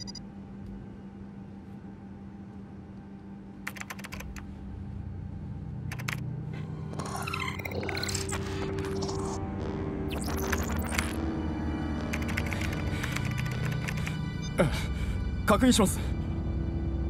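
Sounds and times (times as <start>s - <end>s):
rapid electronic clicking: 0.0s - 0.2s, 3.7s - 4.4s, 5.9s - 6.2s, 10.1s - 11.2s, 12.0s - 14.3s
warbling computer chirps: 0.0s - 0.2s, 6.9s - 11.2s
low hum: 0.0s - 17.0s
deep drone: 4.2s - 17.0s.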